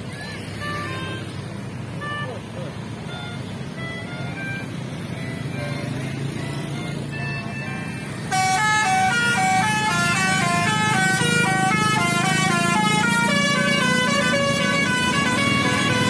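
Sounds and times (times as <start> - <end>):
bus musical horn tune: 0.5 - 16.0.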